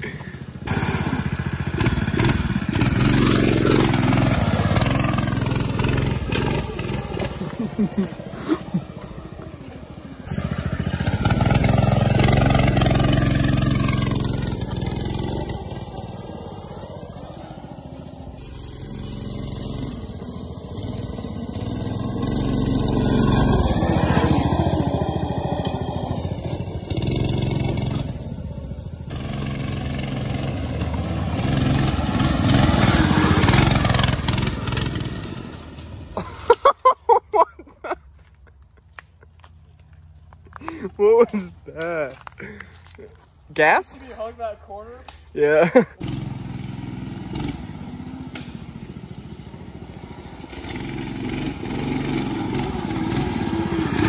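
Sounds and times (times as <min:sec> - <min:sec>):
loud rapid engine pulses: 0:00.0 - 0:36.4
small engine revving: 0:00.0 - 0:36.7, 0:45.1 - 0:54.0.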